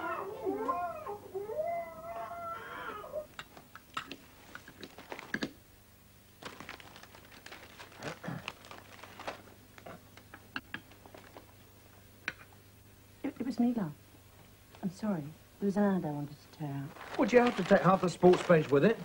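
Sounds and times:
newspaper rustling: 4.9 - 5.4, 6.3 - 10.0, 16.9 - 19.0.

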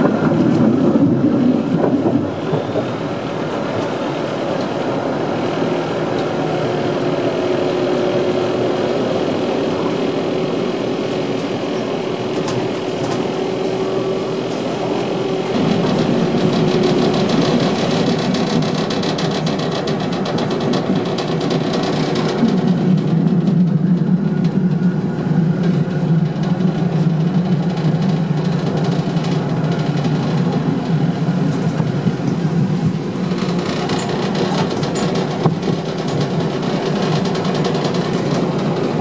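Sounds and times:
tram wheels and motor rumbling: 0.0 - 39.0
fast rattle: 15.6 - 22.5.

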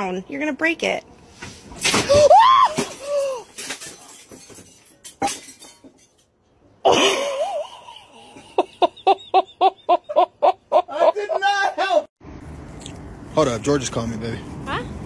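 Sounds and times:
hard laughter: 6.9 - 11.7.

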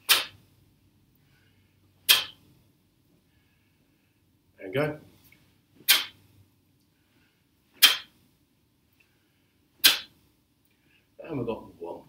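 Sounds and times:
sharp whooshes of strikes: 0.0 - 0.4, 2.1 - 2.4, 5.8 - 6.2, 7.8 - 8.1, 9.8 - 10.1.

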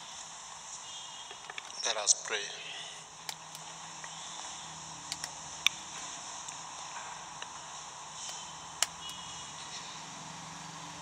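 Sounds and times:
steady hiss: 0.0 - 11.0
sharp clicks: 3.2 - 4.2, 5.1 - 5.8, 8.2 - 9.3.

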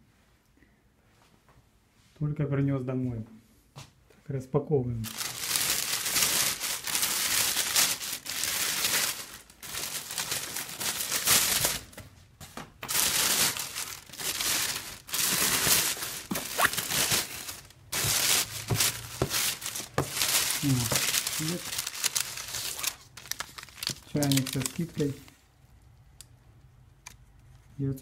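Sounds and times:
plastic bag rustling: 5.0 - 12.2, 12.8 - 25.4.

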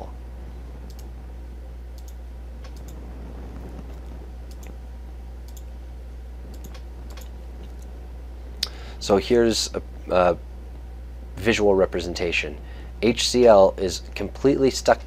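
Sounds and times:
low electrical hum: 0.0 - 15.0
computer clicks: 0.8 - 1.1, 1.9 - 3.0, 3.8 - 4.8, 5.4 - 5.7, 6.5 - 7.9.

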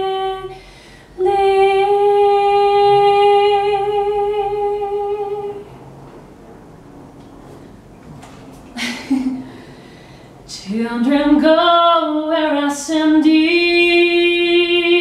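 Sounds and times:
woman singing a long note: 0.0 - 0.6, 1.2 - 5.6, 10.5 - 15.0.

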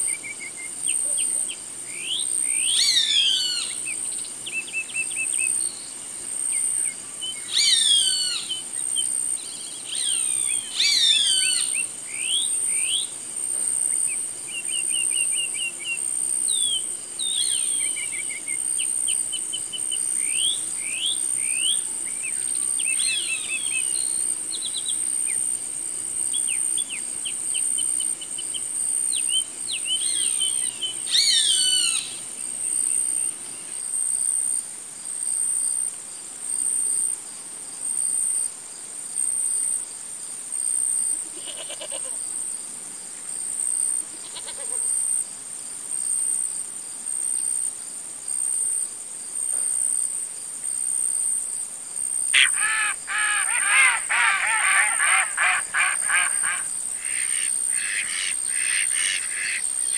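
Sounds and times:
high-pitched insect buzz: 0.0 - 34.6, 40.7 - 42.4, 43.2 - 45.3, 52.1 - 59.9
small birds chirping and trilling: 0.1 - 13.1, 13.8 - 25.4, 26.3 - 32.2, 52.4 - 59.9
hawk screaming: 52.4 - 59.6.

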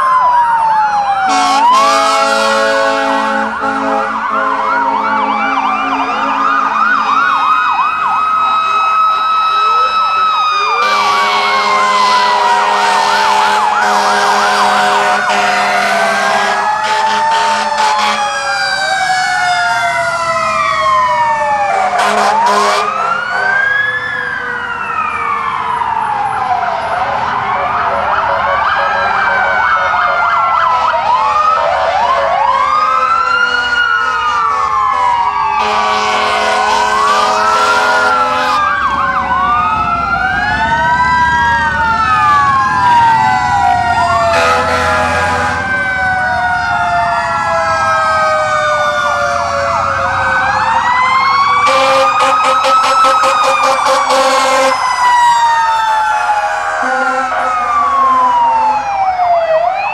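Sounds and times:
fire sirens wailing: 0.0 - 59.9
long horn blasts: 1.3 - 6.5, 10.8 - 18.2, 22.0 - 23.6, 35.6 - 38.6, 44.3 - 45.7, 51.6 - 54.8.

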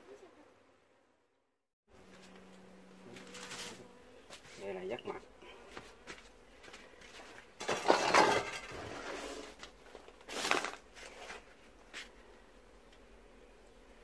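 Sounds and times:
crushing and scraping against metal: 7.6 - 9.6.

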